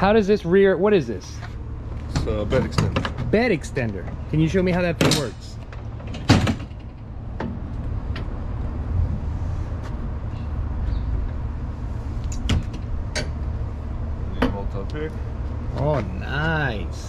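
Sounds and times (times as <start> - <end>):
sharp knocks and clicks: 2.1 - 3.4, 5.0 - 8.4
low rumble: 6.6 - 17.0.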